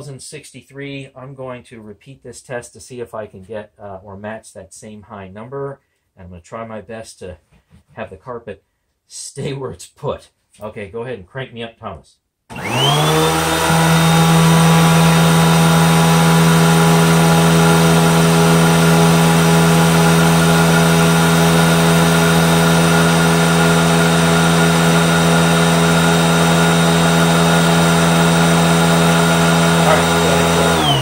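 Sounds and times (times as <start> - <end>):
upright vacuum cleaner running: 12.5 - 31.0.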